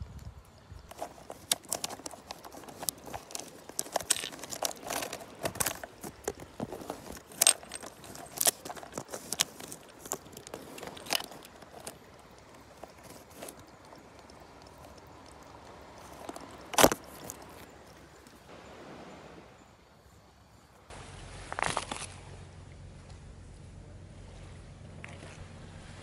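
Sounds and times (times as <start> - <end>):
hard objects clattering: 0.9 - 17.7.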